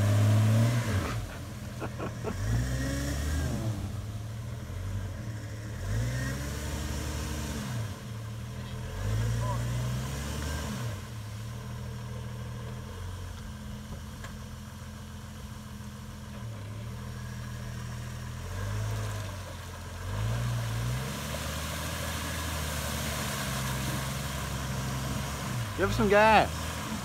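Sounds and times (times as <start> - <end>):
car engine revving: 0.0 - 27.0
water hissing and splashing: 20.8 - 27.0.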